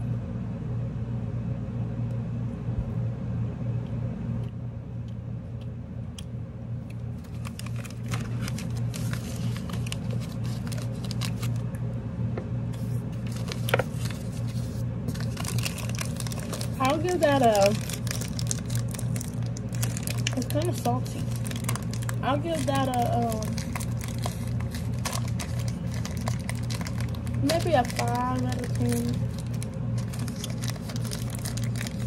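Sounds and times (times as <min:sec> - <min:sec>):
low hum: 0:00.0 - 0:32.0
snack wrapper crinkling: 0:06.8 - 0:11.7, 0:12.8 - 0:32.0.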